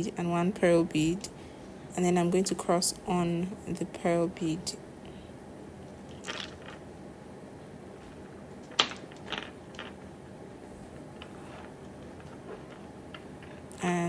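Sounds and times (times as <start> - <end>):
steady low hiss: 0.0 - 14.0
fishing line rustling: 7.9 - 13.7.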